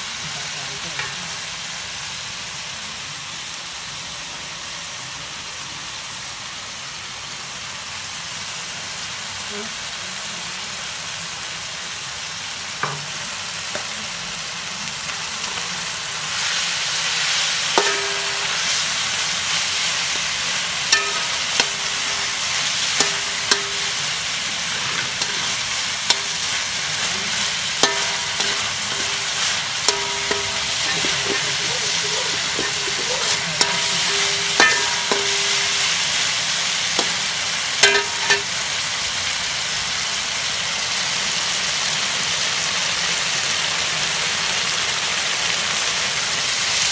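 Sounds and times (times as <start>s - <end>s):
meat sizzling in a wok: 0.0s - 46.9s
metal spatula scraping wok: 16.3s - 38.6s.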